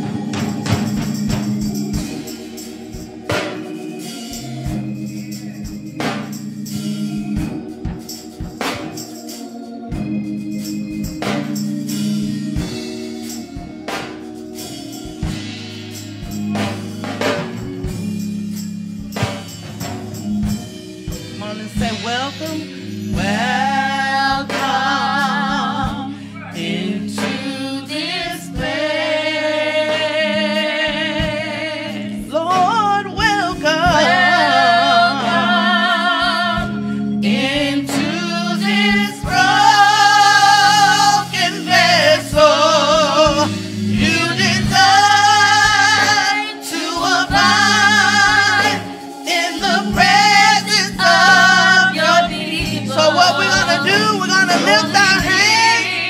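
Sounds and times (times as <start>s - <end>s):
organ chords over a beat: 0.0s - 56.0s
women singing: 23.1s - 56.0s.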